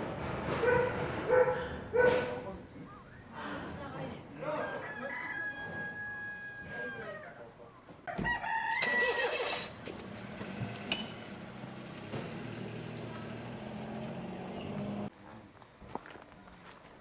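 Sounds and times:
rooster crowing: 0:04.6 - 0:07.3, 0:08.1 - 0:09.7.

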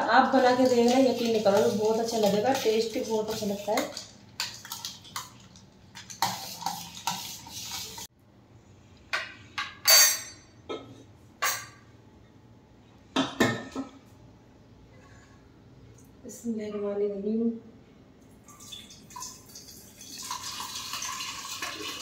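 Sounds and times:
ladle scraping a steel pot: 0:06.1 - 0:08.1
kitchenware clinking on counter: 0:09.2 - 0:11.8, 0:13.2 - 0:14.0.

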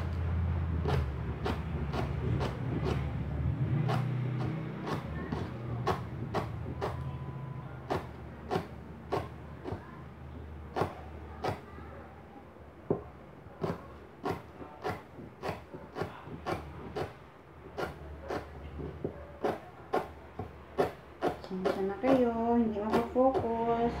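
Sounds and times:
knife chopping on plastic board: 0:00.0 - 0:11.8, 0:12.9 - 0:24.0.

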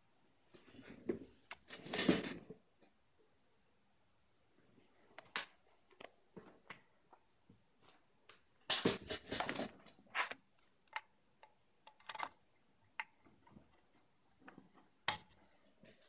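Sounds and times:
cable rustling and knocking: 0:07.8 - 0:11.0.

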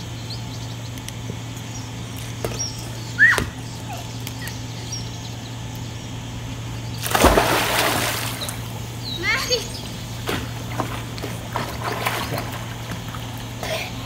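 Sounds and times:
steady low hum: 0:00.0 - 0:14.0
person splashing into pool: 0:07.0 - 0:08.6.

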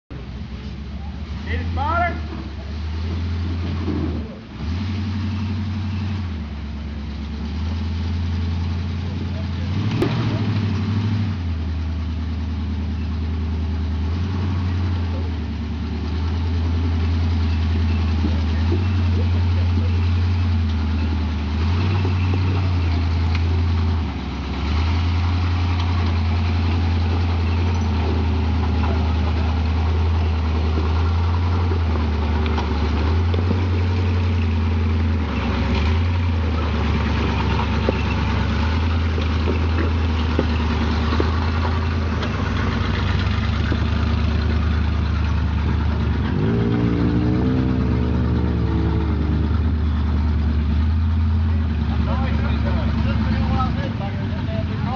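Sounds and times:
truck engine running at low revs: 0:00.1 - 0:54.9
clicks and knocks from rocks: 0:37.1 - 0:44.4.

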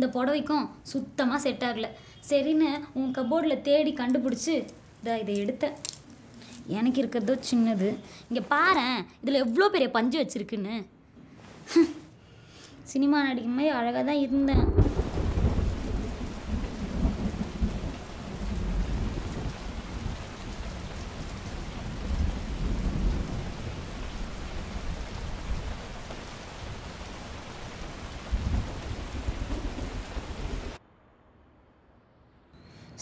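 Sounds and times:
low rolling thunder: 0:14.5 - 0:30.8
heavy rain: 0:14.6 - 0:30.8.

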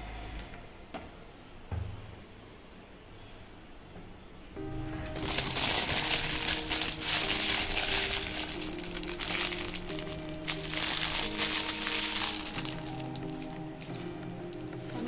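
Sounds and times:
background music held notes: 0:00.0 - 0:01.7, 0:04.3 - 0:15.0
plastic bag crinkling: 0:05.1 - 0:15.0.

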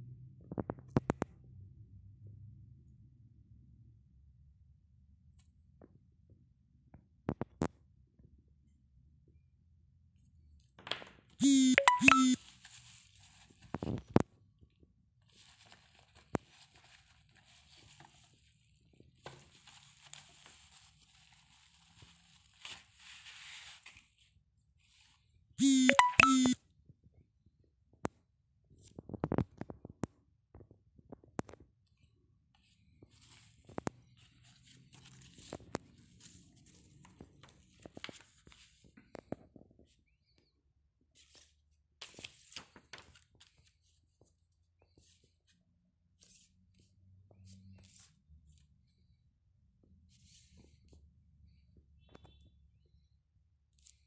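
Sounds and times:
paper rustling and crinkling: 0:12.4 - 0:14.1, 0:15.3 - 0:25.2, 0:33.1 - 0:38.8, 0:41.2 - 0:44.0
light paper clicks and crackles: 0:15.2 - 0:24.3, 0:31.9 - 0:39.5, 0:41.2 - 0:44.4.

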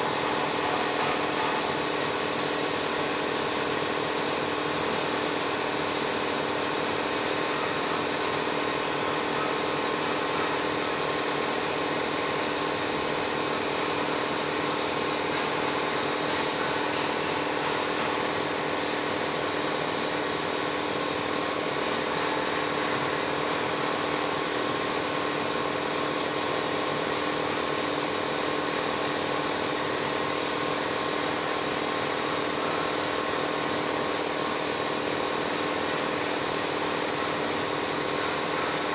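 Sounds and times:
welding machine hum: 0:00.0 - 0:38.9.

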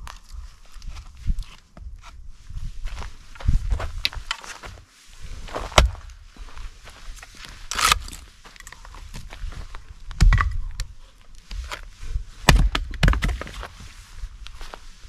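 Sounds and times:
axe chopping wood: 0:05.7 - 0:06.0, 0:12.5 - 0:13.5.

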